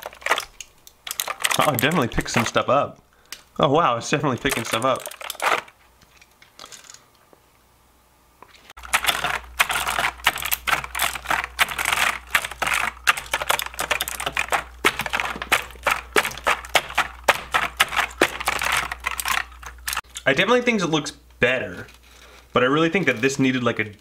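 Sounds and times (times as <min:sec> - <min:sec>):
keyboard keys clicking: 0:08.8 - 0:20.0.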